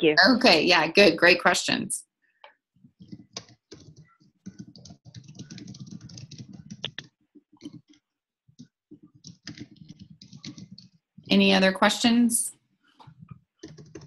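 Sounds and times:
faint keyboard typing: 2.4s - 11.5s, 12.8s - 14.0s.

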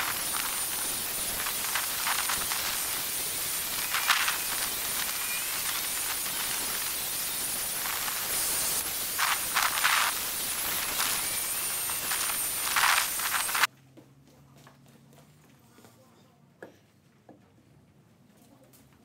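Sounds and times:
belt sander sanding wood: 0.0s - 13.7s.

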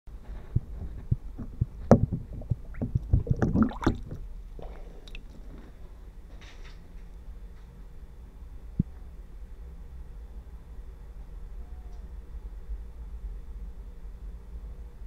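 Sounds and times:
underwater knocks and clicks: 0.4s - 5.3s.

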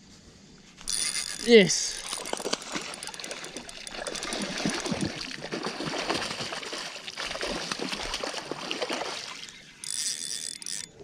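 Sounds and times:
fish splashing in water: 1.0s - 9.9s.

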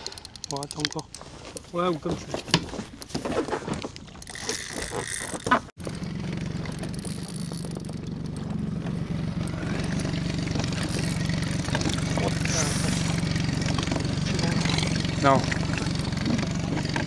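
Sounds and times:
knocks and rustles: 1.2s - 9.0s
outboard motor running: 4.3s - 17.0s.

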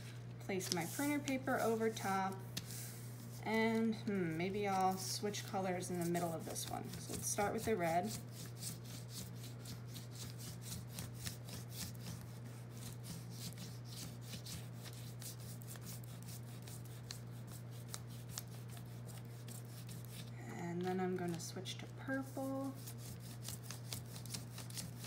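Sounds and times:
crayon scratching on paper: 3.5s - 20.3s, 22.1s - 25.0s.

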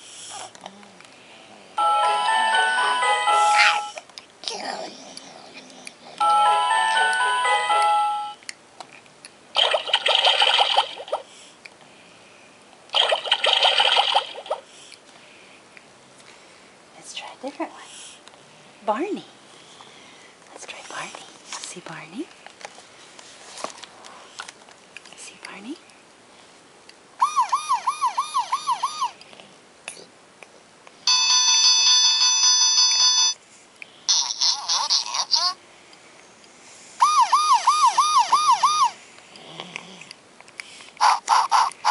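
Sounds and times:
crackly sound effect from small speaker: 9.6s - 11.3s, 12.9s - 14.6s
tinny electronic siren: 27.2s - 29.1s, 37.0s - 39.0s.

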